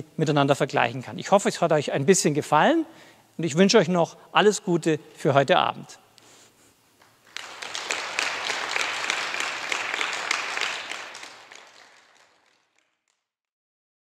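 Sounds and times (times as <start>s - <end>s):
small audience applauding: 7.0s - 13.3s.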